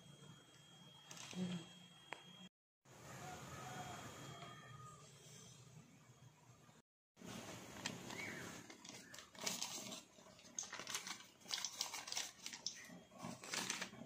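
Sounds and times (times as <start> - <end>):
baking paper rustling: 7.2 - 14.0.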